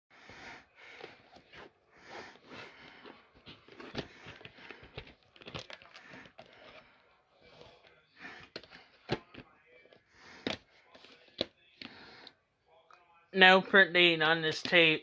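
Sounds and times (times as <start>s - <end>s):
plastic case rustling: 3.1s - 7.0s.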